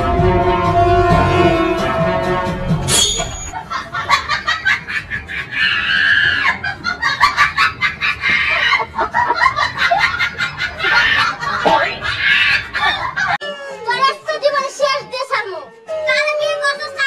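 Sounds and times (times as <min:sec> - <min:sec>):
chicken squawk: 0:05.4 - 0:06.6.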